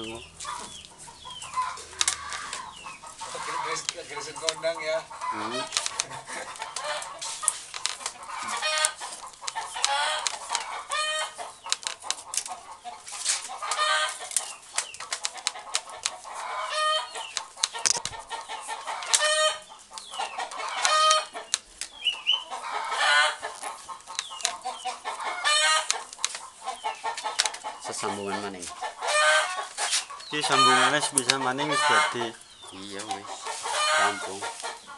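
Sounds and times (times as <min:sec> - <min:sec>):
chickens clucking: 0:00.0 - 0:34.9
small clicks: 0:02.0 - 0:02.6, 0:05.7 - 0:08.2, 0:11.6 - 0:12.6, 0:17.2 - 0:18.2.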